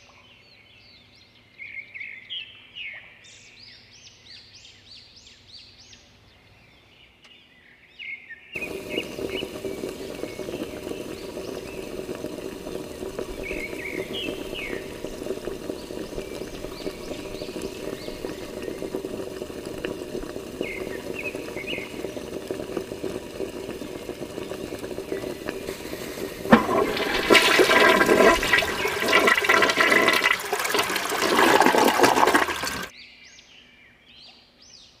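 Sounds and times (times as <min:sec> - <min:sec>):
small electric pump running: 0:08.6 - 0:32.9
water gushing through hose: 0:08.6 - 0:32.9.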